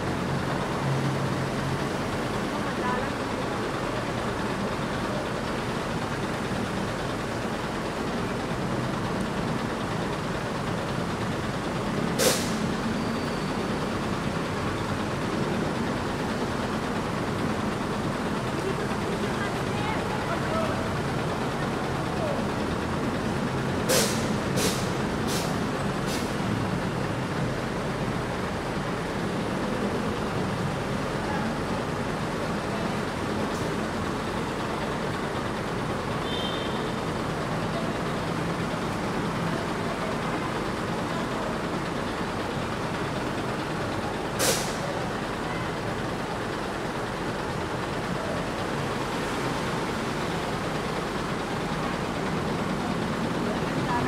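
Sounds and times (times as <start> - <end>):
bus diesel engine idling: 0.0 - 54.0
air release hiss: 12.2 - 12.6, 23.9 - 26.3, 44.4 - 44.8.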